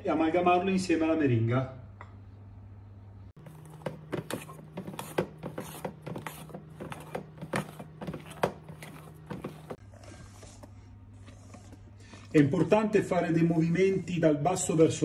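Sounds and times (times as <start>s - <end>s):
spatula scraping steel bowl: 3.4s - 9.8s.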